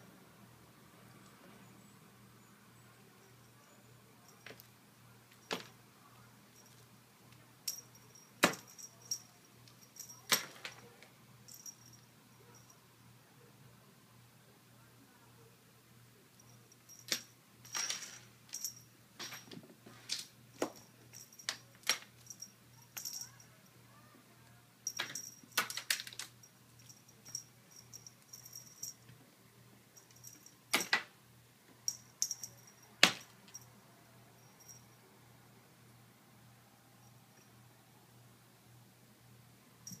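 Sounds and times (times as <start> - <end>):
jingle bell jingling: 7.6 - 12.8, 16.4 - 19.4, 20.6 - 23.7, 24.8 - 29.1, 30.0 - 30.7, 31.8 - 33.7, 34.4 - 35.0.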